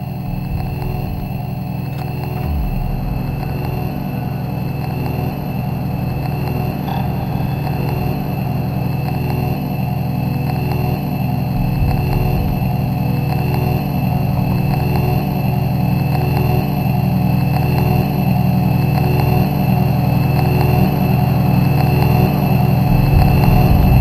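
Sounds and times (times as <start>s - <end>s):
vehicle engine idling: 0.0s - 10.4s.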